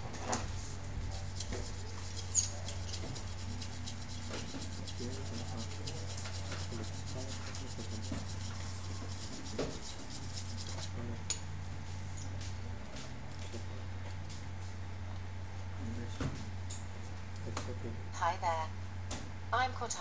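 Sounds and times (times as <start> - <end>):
steady low hum: 0.0 - 20.0
hand tool scraping fan assembly: 1.1 - 11.0.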